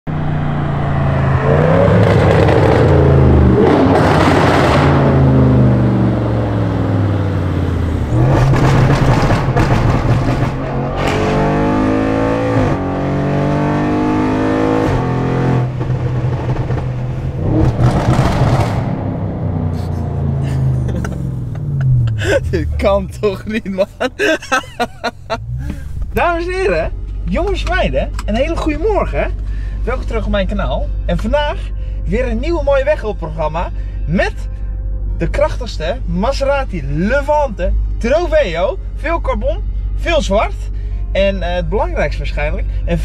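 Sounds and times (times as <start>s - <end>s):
car exhaust revving: 0.1s - 30.3s.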